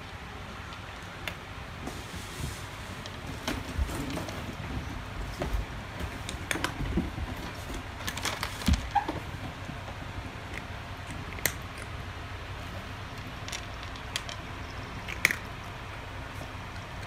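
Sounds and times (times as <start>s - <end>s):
cat crunching kibble: 6.2s - 17.0s.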